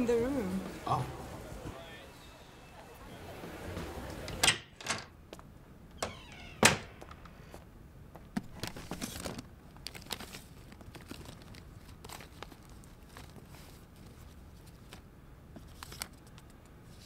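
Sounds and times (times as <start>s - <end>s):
papers rustling: 8.2s - 17.0s.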